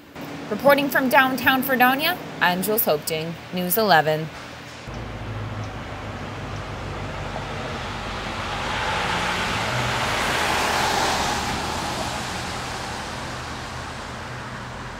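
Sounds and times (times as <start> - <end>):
low hum of traffic: 0.0 - 14.9
car passing: 4.9 - 14.9.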